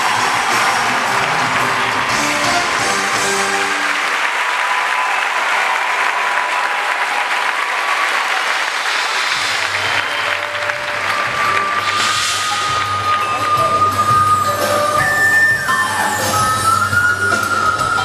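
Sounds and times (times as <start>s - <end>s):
show music: 0.0s - 4.5s, 8.7s - 18.0s
audience applauding: 0.0s - 18.0s.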